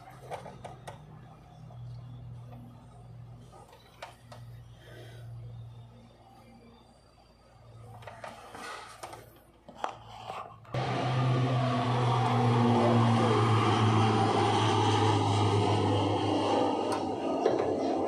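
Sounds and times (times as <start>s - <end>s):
loud mechanical hum: 10.7s - 18.0s.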